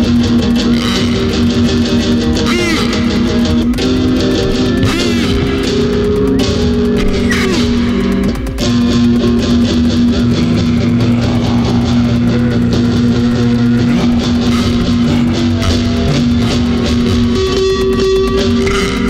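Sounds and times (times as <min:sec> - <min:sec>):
steady beat: 0:00.0 - 0:19.0.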